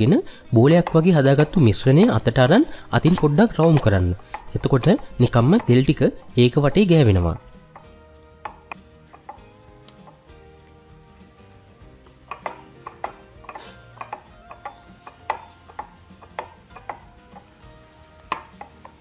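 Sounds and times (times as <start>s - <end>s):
ceramic bowl knocking on stone: 12.3s - 17.2s, 18.3s - 19.0s.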